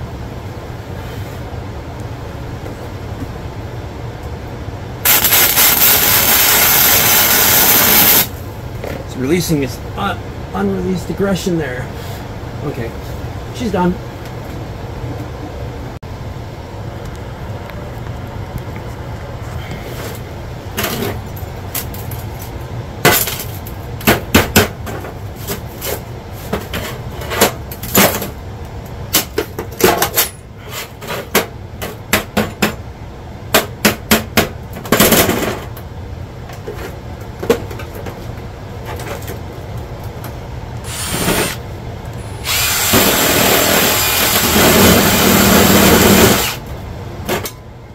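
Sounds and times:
angle grinder running: 40.8 - 41.6, 42.4 - 46.6.

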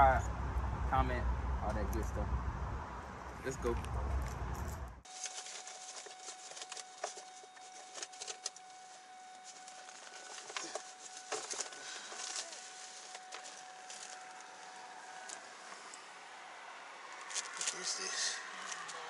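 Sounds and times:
faint steady high tone: 5.1 - 16.4.

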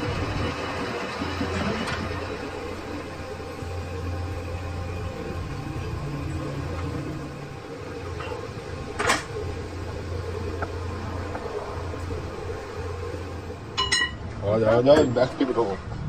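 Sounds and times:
metal lathe humming: 0.0 - 14.9.

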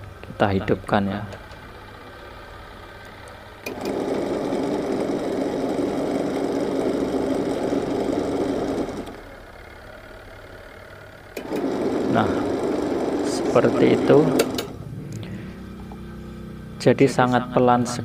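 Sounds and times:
washing machine motor running: 1.4 - 15.1.

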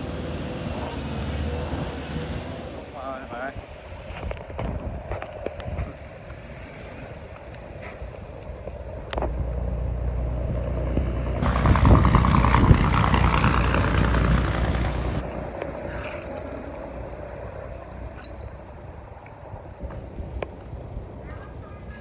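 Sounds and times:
vehicle passing by: 0.0 - 3.2, 9.4 - 16.0.

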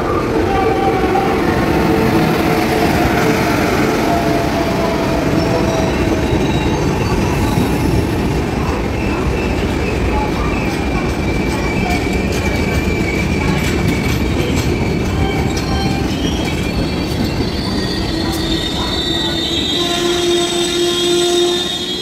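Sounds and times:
train wheels rumbling on rail: 0.0 - 22.0
high-pitched wheel squeal: 11.4 - 22.0.

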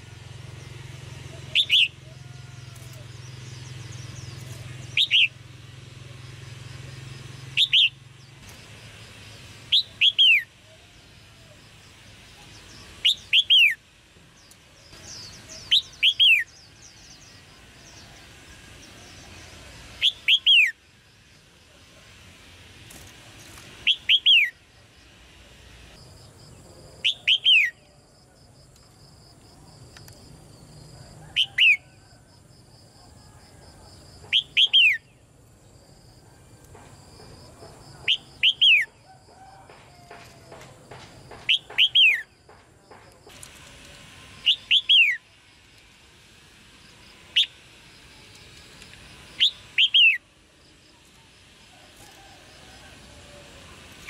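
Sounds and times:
bird chattering calls: 1.2 - 2.2, 2.8 - 5.4, 7.4 - 8.0, 9.7 - 10.5, 12.4 - 13.8, 15.0 - 18.0, 20.0 - 20.8, 23.8 - 24.6, 34.2 - 35.1, 38.0 - 39.0, 41.3 - 42.4, 49.4 - 50.2.

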